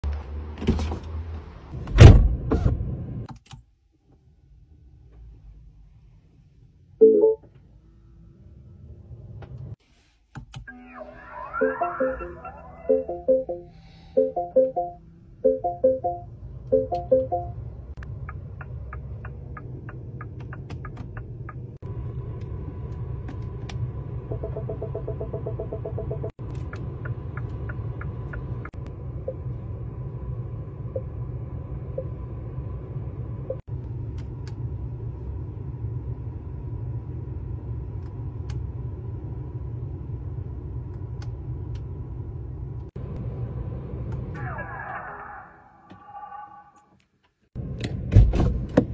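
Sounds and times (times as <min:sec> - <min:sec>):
low cabin hum: 0:01.4 - 0:45.0
electronic tone with falling glides: 0:10.7 - 0:15.0
turn signal ticking: 0:14.2 - 0:21.8, 0:24.3 - 0:28.9.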